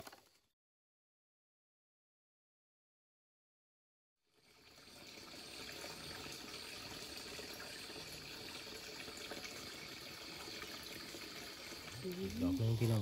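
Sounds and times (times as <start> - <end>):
faint trickle of stream water: 4.2 - 13.0.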